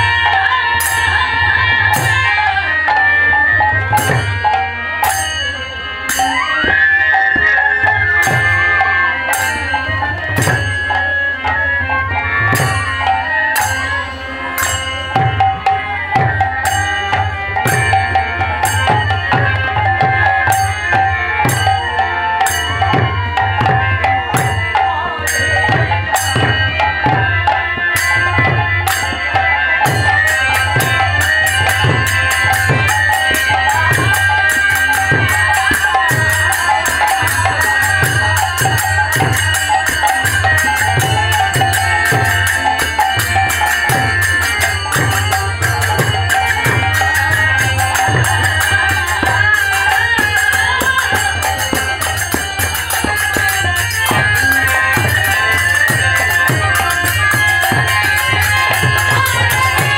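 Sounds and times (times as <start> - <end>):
hand drum beating: 15.0 - 59.9
small metal cymbals clashing: 29.8 - 59.9.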